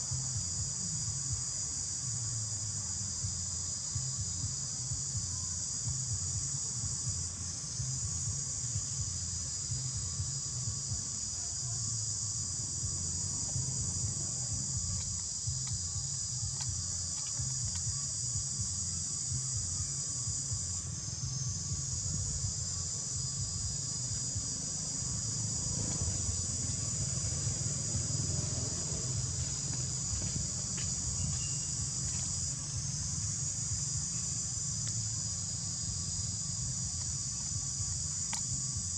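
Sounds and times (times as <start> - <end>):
insect chorus drone: 0.0 - 38.9
low rumble: 23.3 - 32.0.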